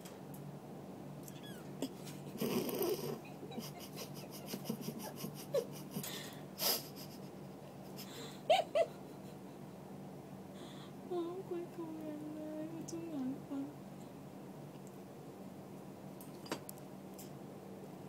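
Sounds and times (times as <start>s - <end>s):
steady low hum: 0.0s - 18.0s
kitten mewing: 1.2s - 5.8s.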